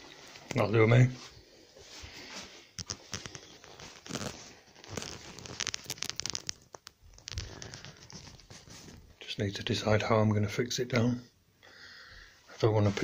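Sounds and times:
footsteps on crinkling plastic sheet: 0:01.2 - 0:09.2.

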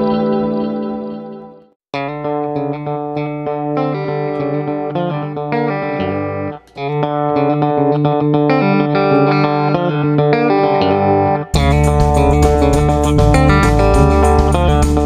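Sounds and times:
electric guitar music: 0:00.0 - 0:15.0
bass line: 0:11.5 - 0:15.0.

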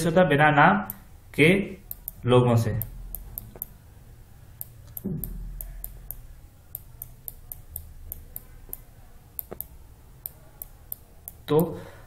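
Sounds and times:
stylus tapping on tablet screen: 0:01.8 - 0:03.8, 0:04.6 - 0:11.7.

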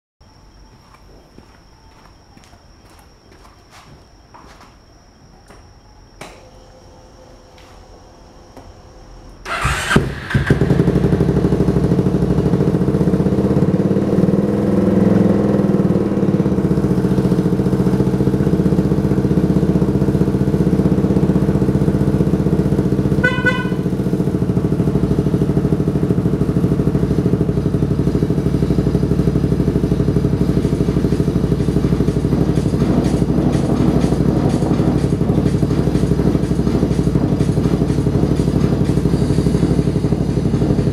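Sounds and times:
scooter engine starting and idling: 0:09.4 - 0:40.9
brief beep: 0:23.2 - 0:23.9.

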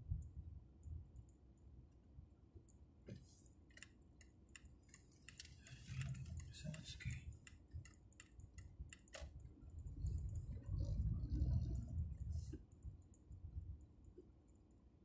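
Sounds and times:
turn signal ticking: 0:05.9 - 0:14.8
low driving rumble: 0:09.7 - 0:12.7.

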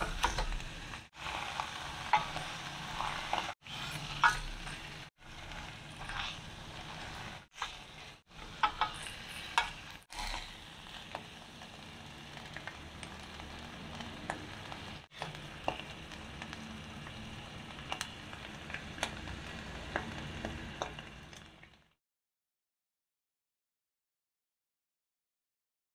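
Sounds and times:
fish sizzling in a pan: 0:00.0 - 0:22.0
fork and spoon scraping pan: 0:01.2 - 0:10.6.

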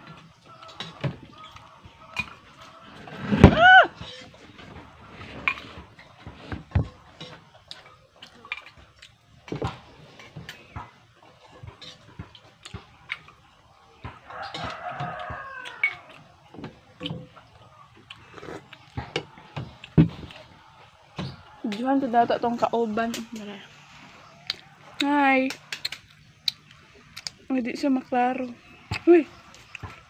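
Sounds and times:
rooster crowing: 0:02.8 - 0:04.0, 0:14.2 - 0:16.2
clicks and taps of eating off plate: 0:06.5 - 0:20.4.

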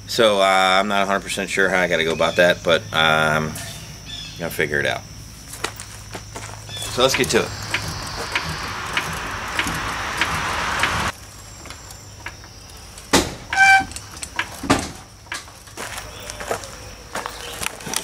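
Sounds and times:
metallic ringing squeal: 0:06.7 - 0:11.1, 0:13.5 - 0:14.0.

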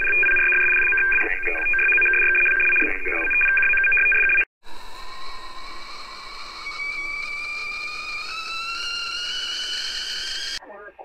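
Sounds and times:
kettle whistling: 0:04.7 - 0:10.6.

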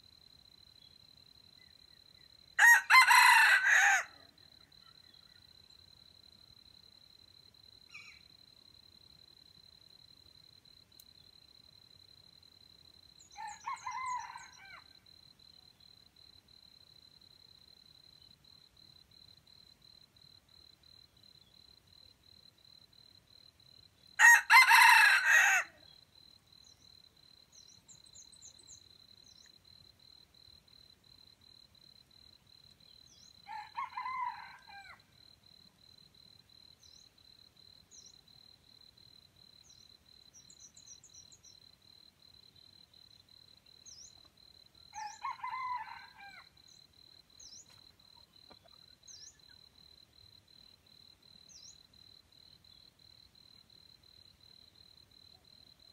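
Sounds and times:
roosters crowing: 0:02.6 - 0:04.2, 0:24.2 - 0:25.8, 0:45.0 - 0:46.4.

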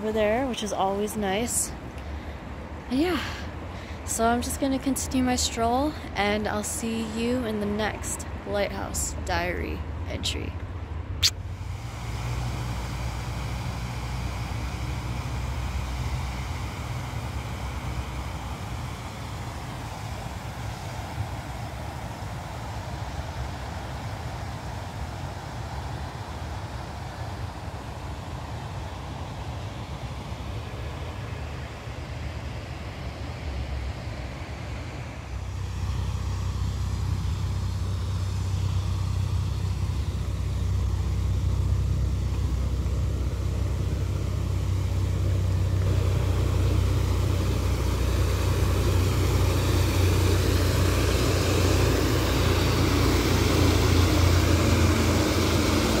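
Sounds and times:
water rushing over weir: 0:35.5 - 0:56.0.

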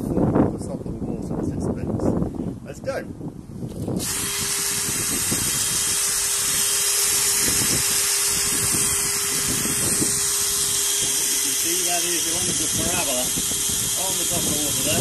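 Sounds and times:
cordless drill running: 0:03.7 - 0:15.0
water churning and spraying: 0:04.0 - 0:15.0.

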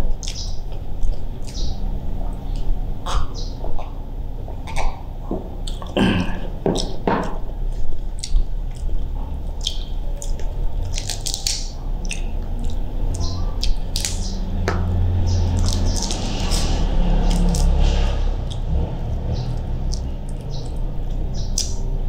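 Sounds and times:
chewing mouth sounds: 0:00.0 - 0:22.0
shellfish shell cracking: 0:09.8 - 0:12.3.

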